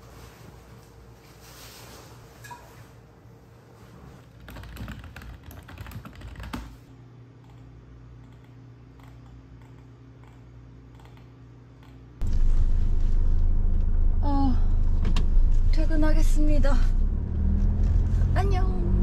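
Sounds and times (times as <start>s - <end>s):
low steady hum: 0.0s - 19.0s
typing on computer keyboard: 4.4s - 6.8s
car engine rumbling: 12.2s - 19.0s.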